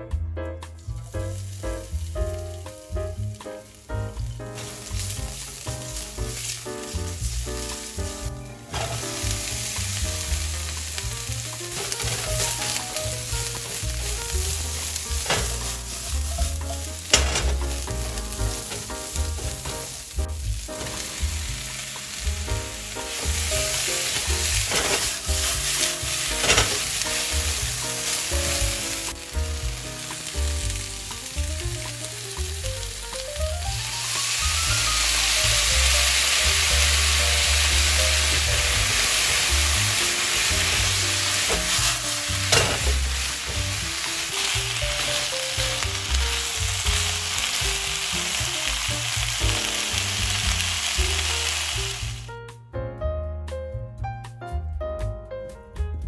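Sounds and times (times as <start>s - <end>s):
soft background music: 0.0s - 56.0s
food sizzling in a wok: 0.7s - 52.3s
spatula scraping a wok: 4.6s - 20.1s, 23.0s - 29.2s, 37.1s - 49.5s.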